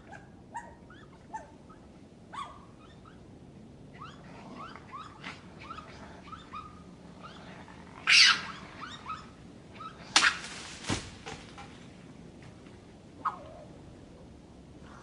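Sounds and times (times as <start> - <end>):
loud rustling bursts: 10.2 - 11.6.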